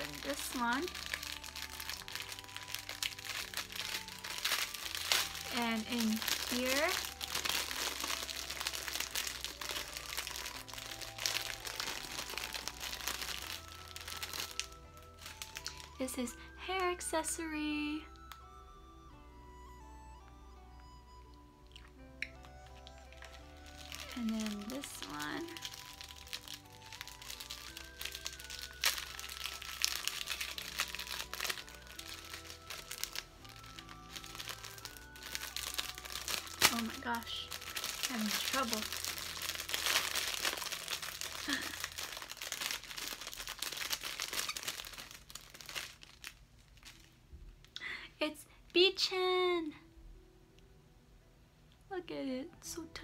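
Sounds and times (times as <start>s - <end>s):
plastic bag crinkling: 0.0s - 17.0s, 22.4s - 47.3s
soft background music: 0.0s - 53.0s.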